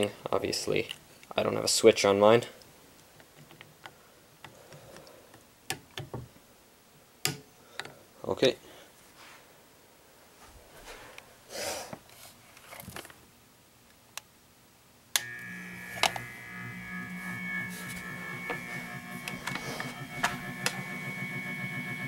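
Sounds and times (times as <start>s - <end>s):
motor whining and pulsing: 15.2s - 22.0s.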